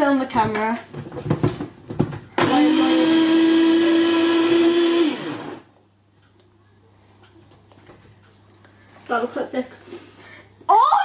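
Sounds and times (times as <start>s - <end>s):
electric blender whining: 2.4s - 5.7s.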